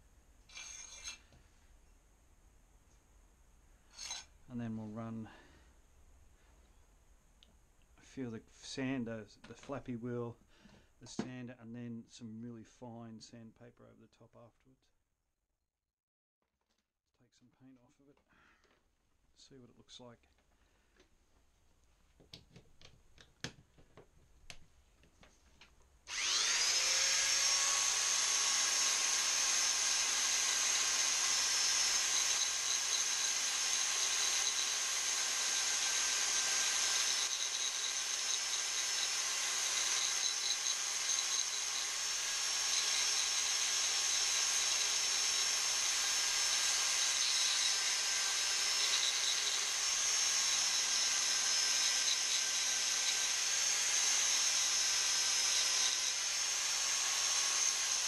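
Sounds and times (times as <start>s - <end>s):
belt sander whining: 26.1s - 58.0s.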